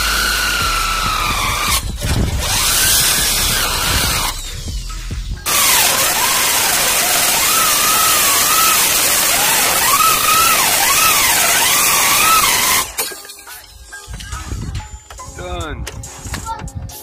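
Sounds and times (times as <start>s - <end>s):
hole saw cutting sheet metal: 0.0s - 4.6s, 5.5s - 13.2s
drill whine wavering: 0.0s - 13.0s.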